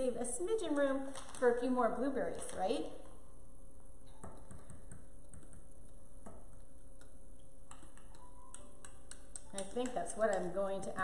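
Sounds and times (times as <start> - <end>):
faint steady hum: 0.0 - 11.0
fork tapping glass mug: 7.7 - 10.8.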